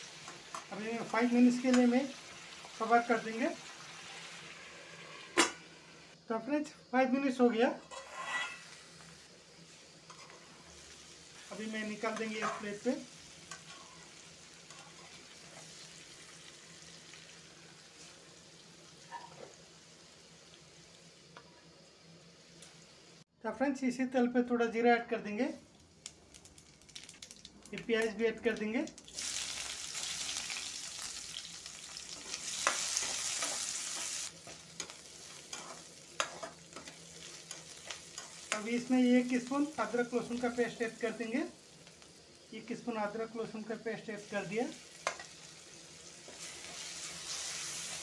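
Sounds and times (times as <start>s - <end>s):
vegetables sizzling in oil: 0.0s - 23.3s, 24.7s - 48.0s
metal spatula scraping pan: 7.8s - 8.8s
steel spoon scraping: 7.8s - 8.8s, 35.5s - 38.5s.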